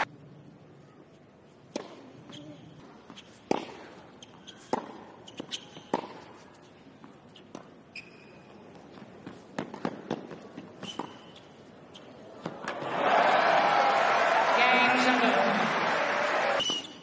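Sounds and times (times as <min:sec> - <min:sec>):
racket hitting ball: 0:03.5 - 0:03.9, 0:04.7 - 0:05.1, 0:05.9 - 0:06.3
shoes squeaking: 0:04.2 - 0:09.8, 0:10.5 - 0:12.2.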